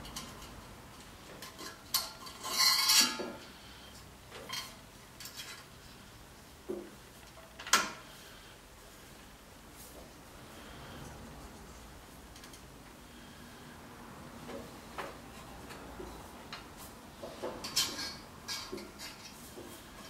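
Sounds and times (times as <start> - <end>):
metal scraping rattle: 1.4 - 3.5.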